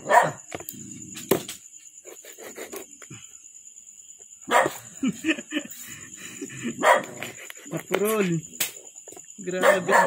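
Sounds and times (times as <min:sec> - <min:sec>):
dog barking: 0:00.0 - 0:00.4, 0:04.5 - 0:04.8, 0:06.7 - 0:07.2, 0:09.6 - 0:10.0.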